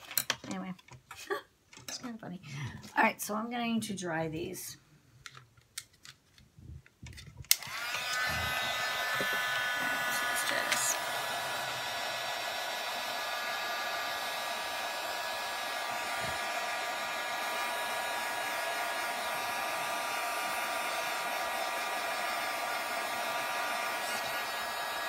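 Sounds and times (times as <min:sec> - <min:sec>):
heat tool blowing air: 0:07.5 - 0:25.0.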